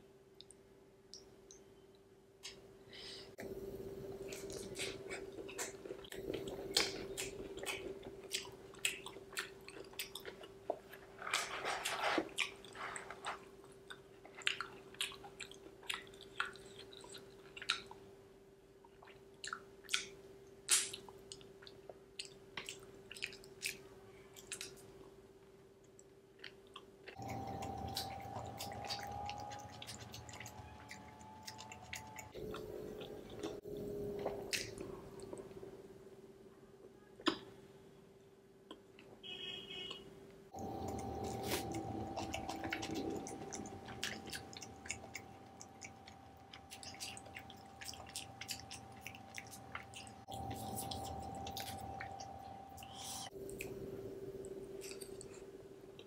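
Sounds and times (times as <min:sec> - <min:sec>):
faint steady hum: 0:00.0 - 0:56.0
chewing pizza: 0:04.1 - 0:18.2, 0:18.8 - 0:25.2, 0:25.9 - 0:35.8, 0:40.7 - 0:53.8.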